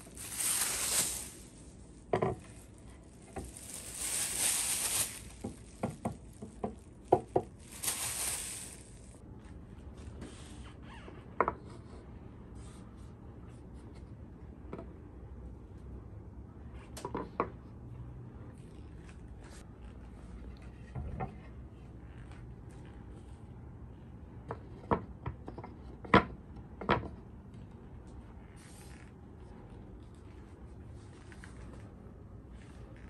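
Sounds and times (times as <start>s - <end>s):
plastic wrapping crinkling: 0.0s - 9.2s.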